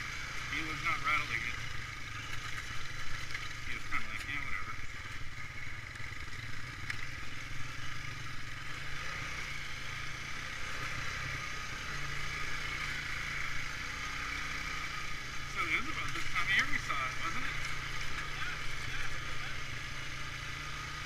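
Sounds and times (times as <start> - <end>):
atv engine running: 0.0 - 21.0.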